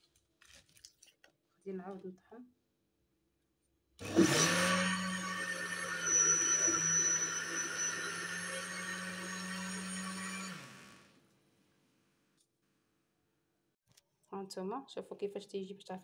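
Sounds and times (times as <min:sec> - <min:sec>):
blender motor running: 0:04.0 - 0:11.1.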